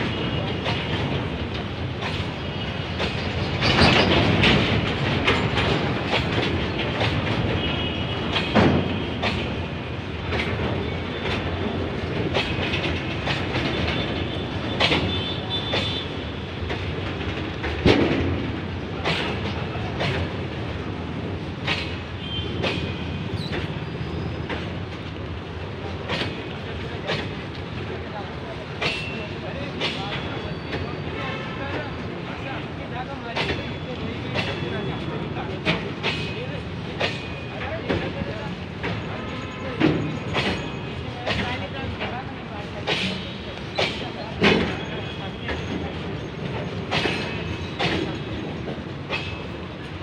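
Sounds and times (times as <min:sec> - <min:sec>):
freight train rumble: 0:00.0 - 0:50.0
wheels clattering over rail joints: 0:00.5 - 0:25.2.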